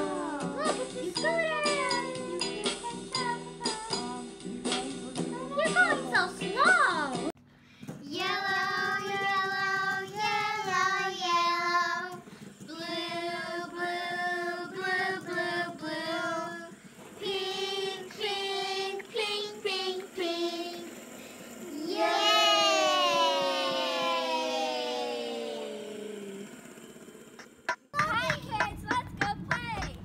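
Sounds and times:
child singing: 0:00.0 - 0:07.1, 0:08.0 - 0:20.9.

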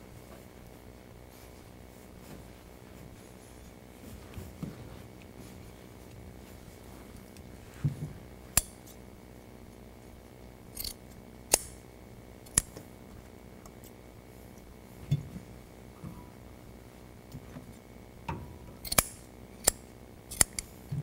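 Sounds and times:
scissor blades clicking: 0:10.8 - 0:11.8, 0:12.5 - 0:12.7, 0:18.8 - 0:20.7.

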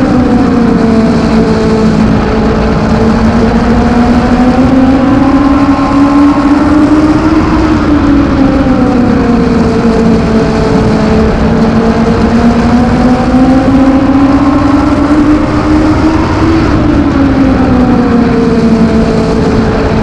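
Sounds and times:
race car engine accelerating: 0:00.0 - 0:20.0.

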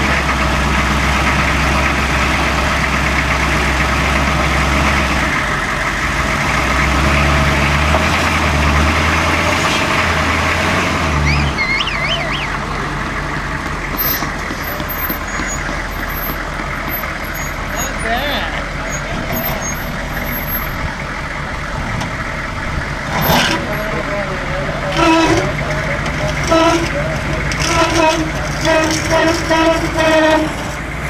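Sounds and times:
engine running at low revs: 0:00.0 - 0:31.0
high warbling chirp: 0:11.2 - 0:12.6.

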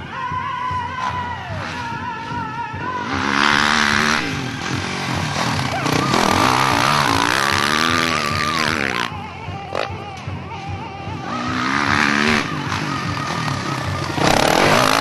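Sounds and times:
motocross bike revving by: 0:03.0 - 0:09.1, 0:11.3 - 0:15.0.

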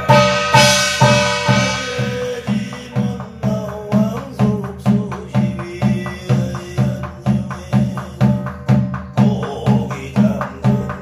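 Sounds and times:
metallic ring: 0:00.0 - 0:02.9
barrel drum beating: 0:00.0 - 0:11.0
person chanting scripture: 0:01.4 - 0:11.0.

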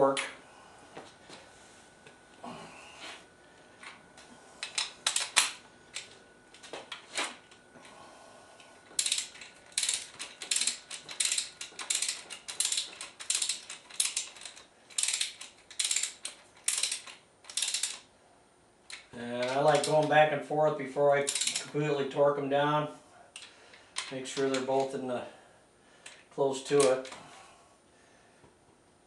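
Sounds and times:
hand ratchet clicking: 0:04.6 - 0:06.8, 0:09.0 - 0:18.0, 0:18.9 - 0:20.1, 0:21.2 - 0:21.8.

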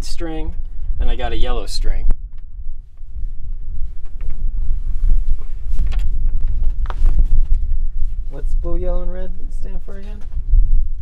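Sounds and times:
wind buffeting microphone: 0:00.0 - 0:11.0.

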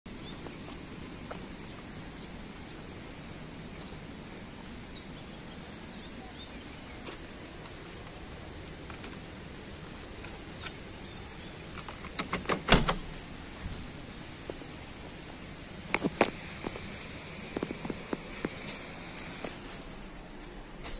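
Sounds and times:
steady outdoor background: 0:00.1 - 0:20.9
metallic door lock clicks: 0:09.9 - 0:13.2
door latch clunk: 0:11.7 - 0:13.2.

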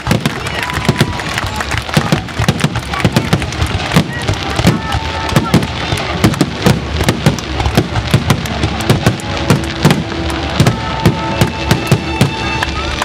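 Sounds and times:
firework shells booming: 0:00.0 - 0:13.0
fireworks crackling rumble: 0:00.0 - 0:13.0.

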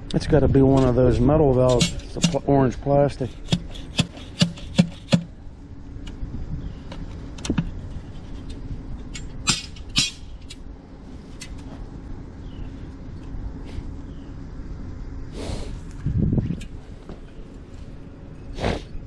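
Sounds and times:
low engine hum: 0:00.0 - 0:19.0
hand tool scrapes: 0:03.0 - 0:05.2.

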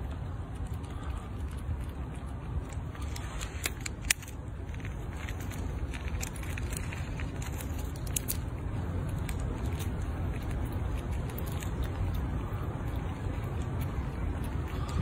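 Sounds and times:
squirrel gnawing walnut shell: 0:00.0 - 0:15.0.

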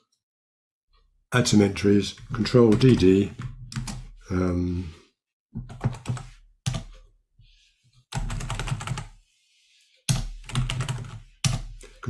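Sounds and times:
typing on computer keyboard: 0:02.7 - 0:04.0, 0:05.6 - 0:06.9, 0:08.1 - 0:09.1, 0:10.1 - 0:11.7.

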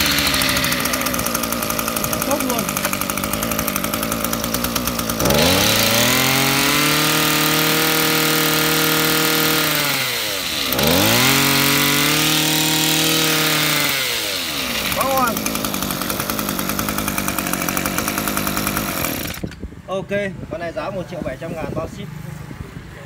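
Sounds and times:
brush cutter engine revving: 0:00.0 - 0:19.7.

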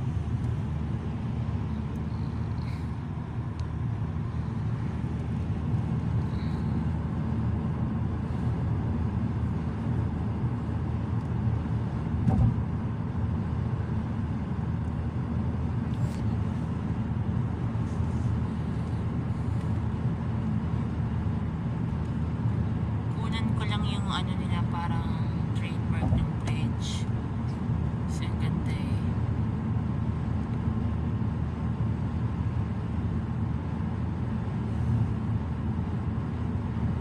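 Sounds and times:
car road and engine rumble: 0:00.0 - 0:37.0
thump: 0:12.2 - 0:12.6.

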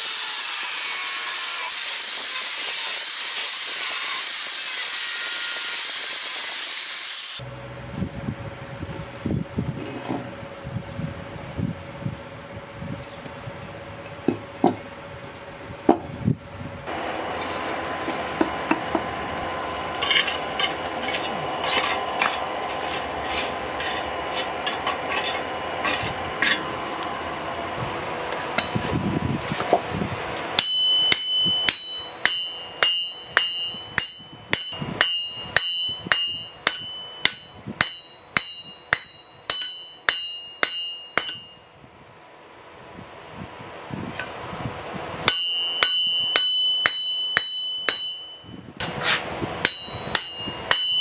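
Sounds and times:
hammer striking steel on anvil: 0:19.9 - 0:26.8, 0:28.4 - 0:28.9, 0:30.5 - 0:41.8, 0:45.2 - 0:51.0.

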